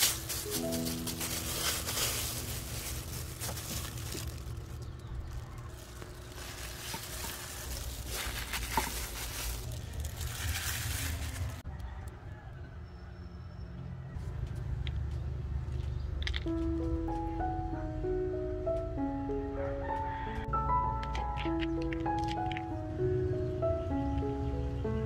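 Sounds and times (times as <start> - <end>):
plastic gloves crinkling: 0.0 - 11.6
steady low background rumble: 0.0 - 11.6.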